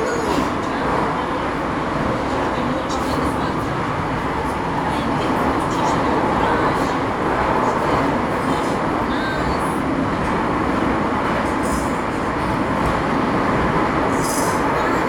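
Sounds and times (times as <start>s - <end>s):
metro train rumbling in tunnel: 0.0s - 15.0s.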